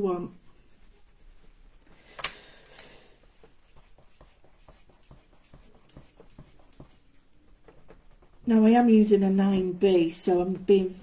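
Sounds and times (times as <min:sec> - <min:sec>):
hands rustling on paper: 0:00.4 - 0:09.7.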